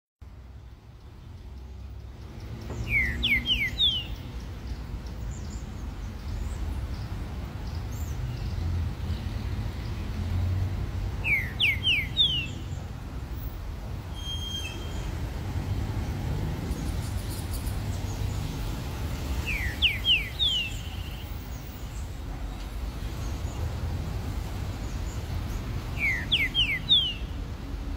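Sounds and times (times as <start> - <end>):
bird whistling song: 2.7 - 4.3, 11.2 - 12.7, 14.1 - 15.1, 19.4 - 21.4, 25.9 - 27.4.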